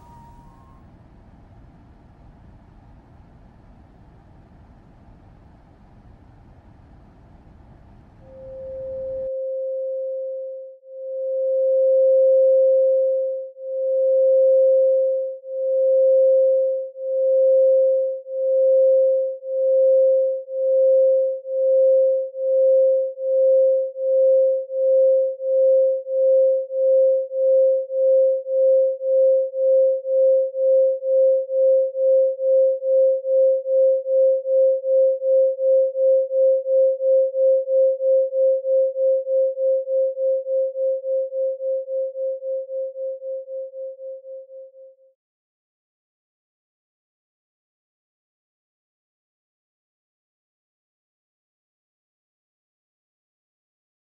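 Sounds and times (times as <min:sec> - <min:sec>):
pulsing electronic tone: 0:00.0 - 0:09.3.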